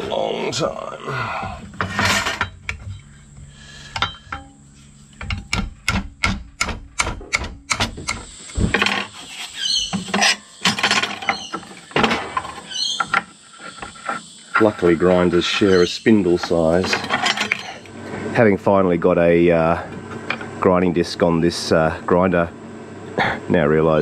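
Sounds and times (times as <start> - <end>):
metal scraping: 1.4 - 5.6, 8.1 - 18.3
sharp metallic clicks and knocks: 3.9 - 9.1
short squeaks: 8.8 - 17.9.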